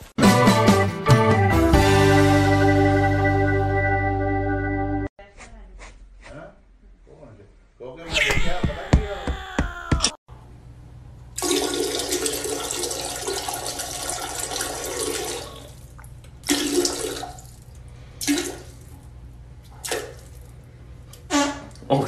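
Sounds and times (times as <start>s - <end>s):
water rushing in toilet bowl: 11.4s - 17.6s.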